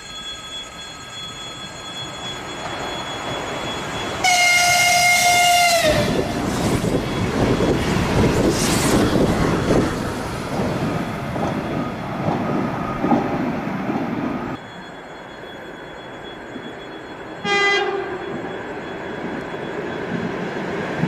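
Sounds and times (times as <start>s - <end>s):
train rushing past: 1.8s - 21.0s
train horn blast: 4.2s - 6.3s, 17.4s - 18.2s.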